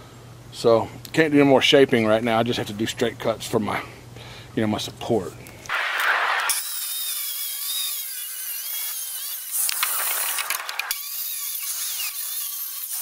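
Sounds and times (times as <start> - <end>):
circular saw cutting wood: 5.7 - 13.0.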